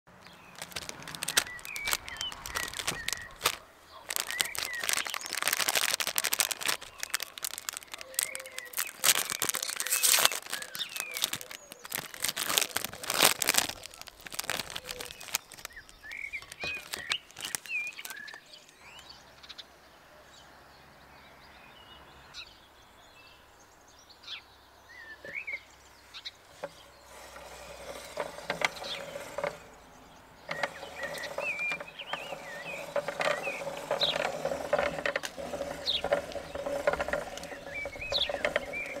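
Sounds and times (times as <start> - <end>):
small birds chirping: 0.1 - 39.0
plastic wrappers crinkling: 0.2 - 18.4, 26.6 - 29.6, 30.5 - 39.0.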